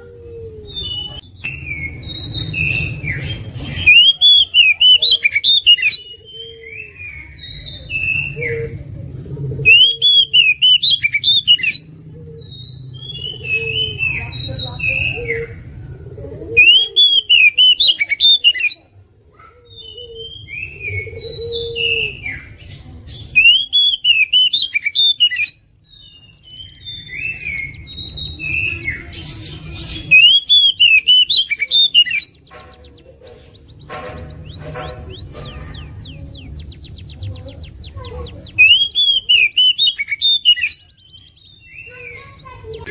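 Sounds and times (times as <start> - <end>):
magpie-robin song phrases: 0.6 - 42.9
bird chirps and whistles: 0.8 - 6.5, 9.7 - 11.8, 16.6 - 18.8, 23.3 - 42.9.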